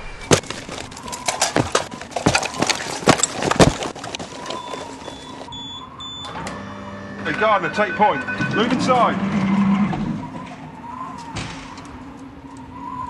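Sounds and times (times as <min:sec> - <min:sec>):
boots running on pavement: 0:00.3 - 0:05.5
short electronic tones: 0:04.6 - 0:09.7.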